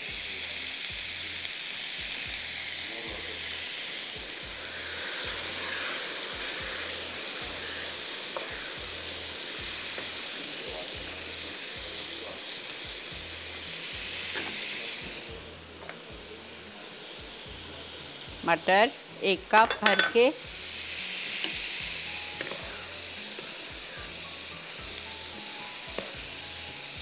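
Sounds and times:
food sizzling in oil: 0.0s - 27.0s
stirring in pan: 4.3s - 10.4s.

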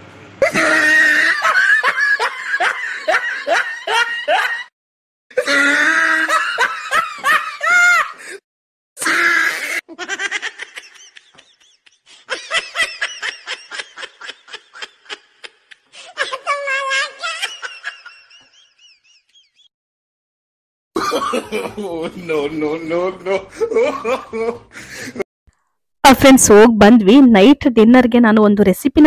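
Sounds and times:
high-pitched laughter: 0.4s - 4.7s, 5.4s - 8.2s, 9.0s - 19.5s.

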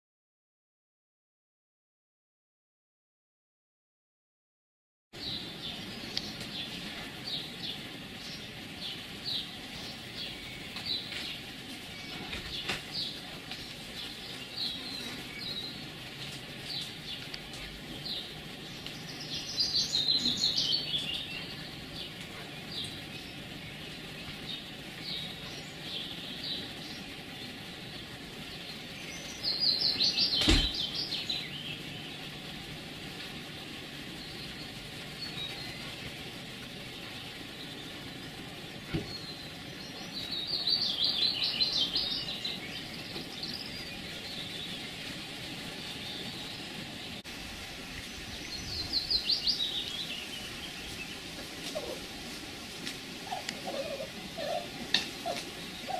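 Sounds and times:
small birds chirping: 5.2s - 55.9s.

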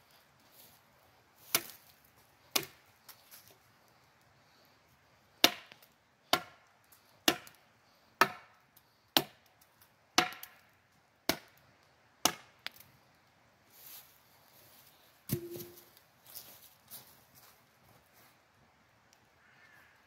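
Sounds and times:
sickle blade chopping wood: 1.4s - 1.9s, 2.5s - 2.8s, 5.4s - 6.6s, 7.2s - 7.6s, 8.2s - 8.5s, 9.2s - 9.4s, 10.2s - 10.6s, 11.3s - 11.6s, 12.2s - 12.8s, 15.3s - 15.9s.

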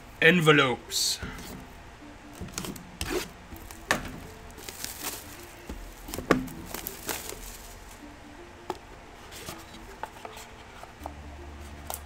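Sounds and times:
plastic shrink wrap crinkling: 3.6s - 8.0s.

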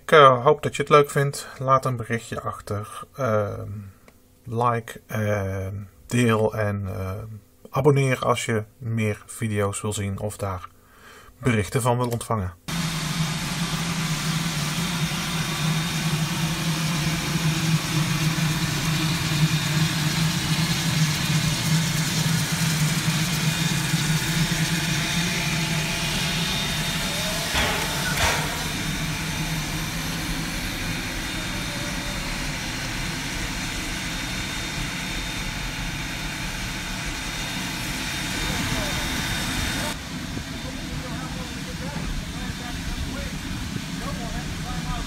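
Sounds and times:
low hum: 12.7s - 45.0s
steam hissing: 12.7s - 45.0s
brief squeal: 27.0s - 28.8s.

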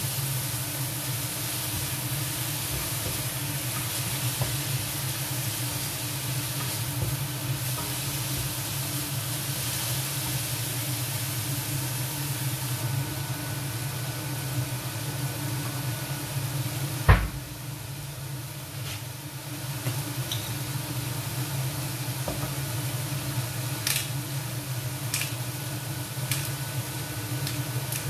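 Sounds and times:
chicken sizzling in a pan: 0.0s - 28.0s.

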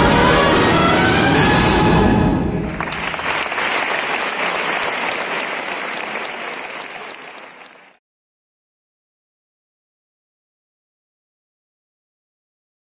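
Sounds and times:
brass band chord: 0.0s - 2.6s
audience applauding: 2.6s - 8.0s.

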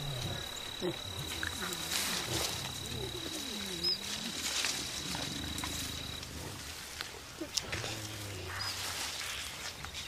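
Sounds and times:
high insect note: 0.0s - 6.3s
gorillas rumbling vocalisations: 0.0s - 6.4s.

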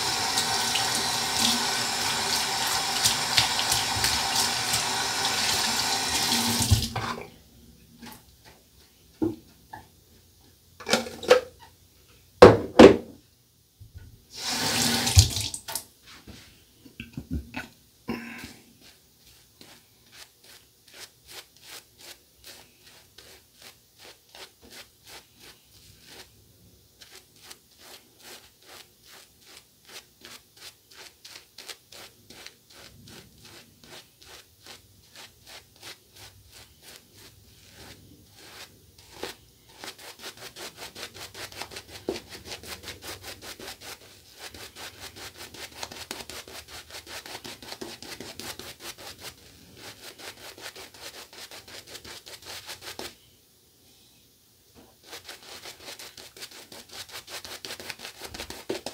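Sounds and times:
shaving brush scrubbing face: 0.0s - 6.5s, 18.2s - 26.4s, 27.0s - 53.2s, 55.0s - 58.9s.

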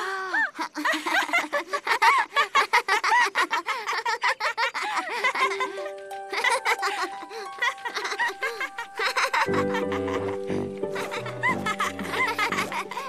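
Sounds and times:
cartoon children giggling: 0.0s - 13.0s
light background music: 5.2s - 13.0s.

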